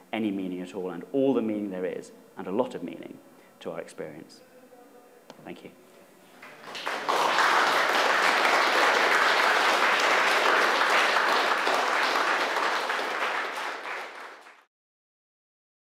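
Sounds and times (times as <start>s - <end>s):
audience applauding: 6.4s - 14.7s.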